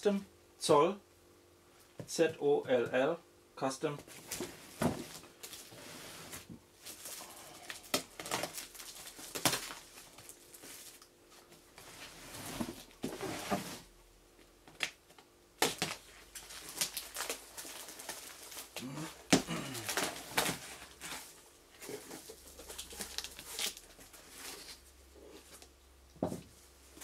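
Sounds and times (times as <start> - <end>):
plastic film crinkling and tearing: 6.8 - 11.0, 15.6 - 24.8.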